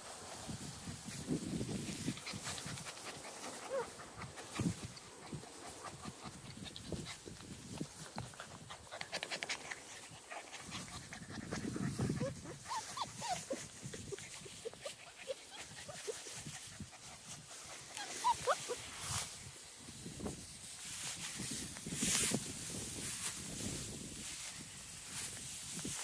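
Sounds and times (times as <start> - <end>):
rustling: 0.0 - 26.0
puppies whimpering: 3.7 - 4.0, 11.8 - 16.4, 17.8 - 18.9.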